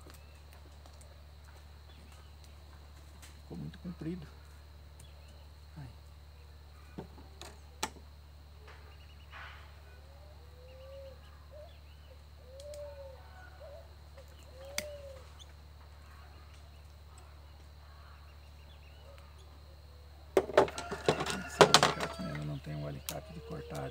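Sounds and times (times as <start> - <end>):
dove cooing: 9.7 - 18.2, 21.0 - 23.9.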